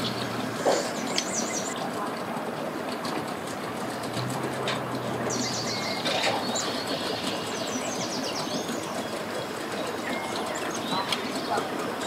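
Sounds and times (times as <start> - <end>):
birds chirping: 0.0 - 2.0, 4.9 - 12.0
outdoor background noise: 0.0 - 12.0.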